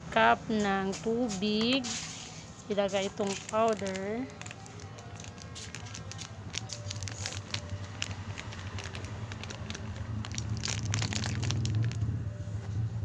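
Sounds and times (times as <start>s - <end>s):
plastic bag crinkling: 1.9s - 12.1s.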